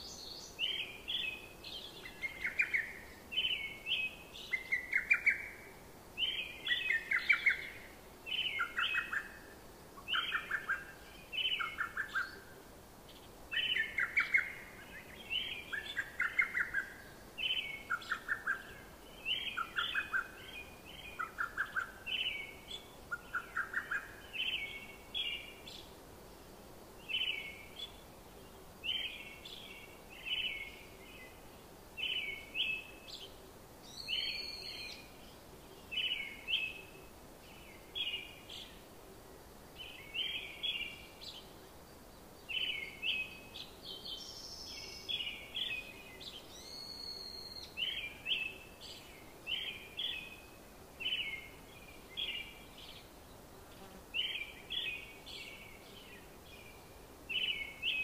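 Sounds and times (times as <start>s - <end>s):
birds chirping: 0.0s - 5.6s, 39.7s - 58.0s.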